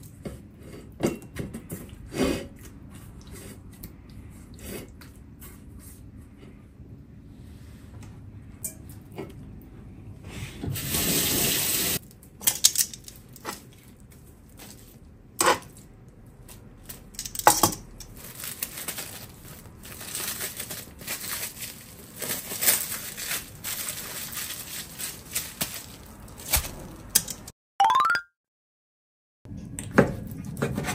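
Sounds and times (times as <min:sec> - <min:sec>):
plastic wrap crinkling: 0:18.0 - 0:27.5.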